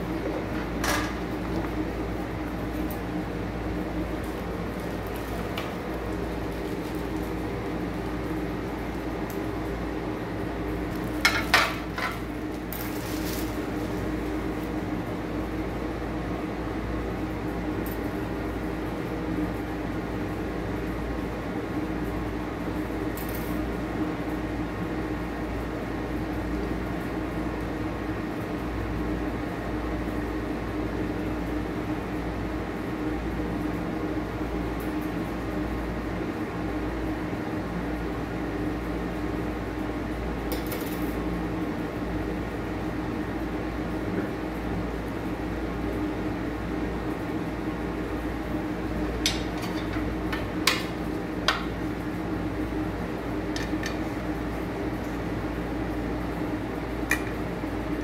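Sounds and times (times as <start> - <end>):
appliance humming: 0.0 - 58.0.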